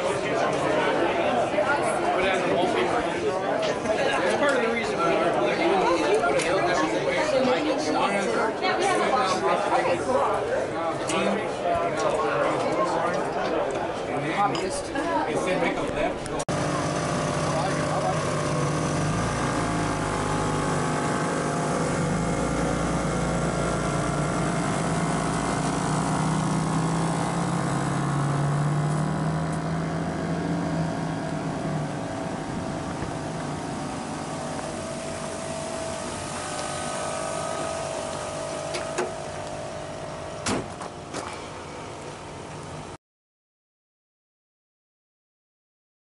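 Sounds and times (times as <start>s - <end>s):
motor drone: 16.5s - 42.6s.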